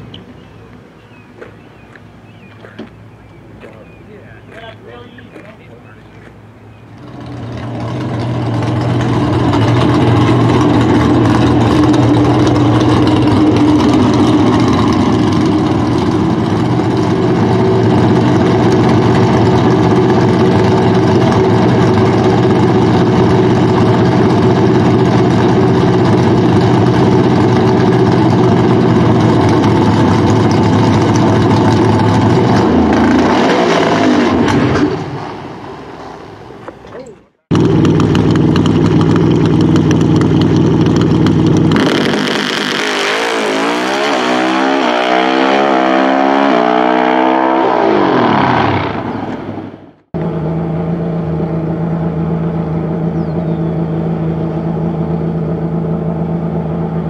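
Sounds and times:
drag car engine idling: 0:03.8 - 0:32.9, 0:37.5 - 0:42.0, 0:50.2 - 0:57.0.

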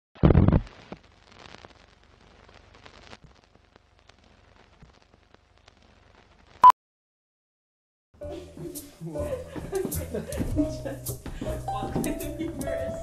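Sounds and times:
film crackle and clicks: 0:00.2 - 0:06.6.

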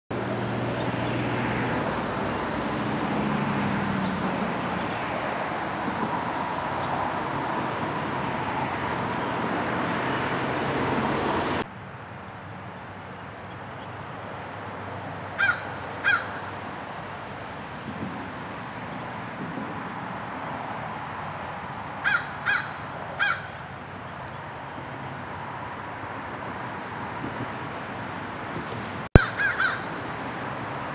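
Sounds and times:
crow cawing: 0:15.4 - 0:16.5, 0:22.0 - 0:23.6, 0:29.2 - 0:30.0.

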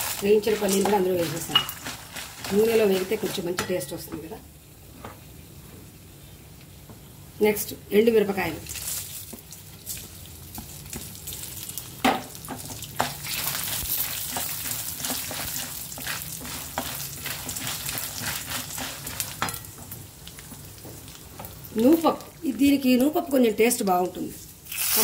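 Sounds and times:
food sizzling in hot oil: 0:00.0 - 0:04.0, 0:08.2 - 0:25.0
wooden spatula scraping pan: 0:00.1 - 0:03.8, 0:13.0 - 0:19.6.

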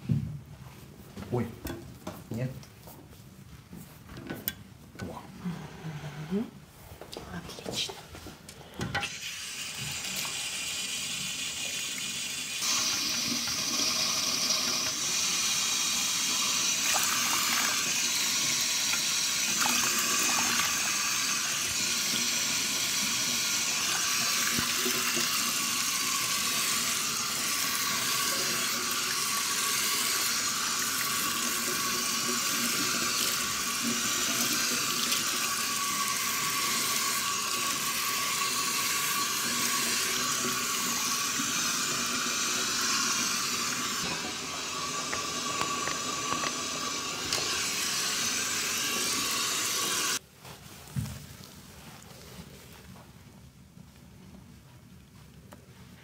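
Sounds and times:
tap water running into basin: 0:09.0 - 0:50.2.

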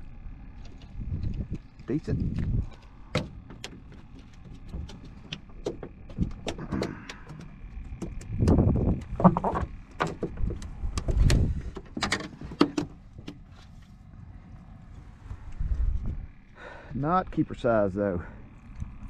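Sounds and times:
rubbing and thumping: 0:03.1 - 0:13.7.

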